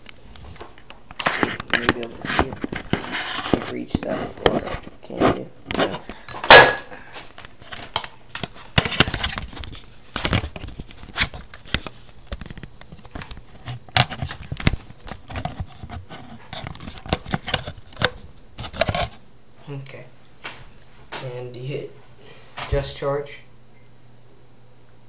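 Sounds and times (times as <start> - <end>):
loud sharp knock: 6.5 - 6.9.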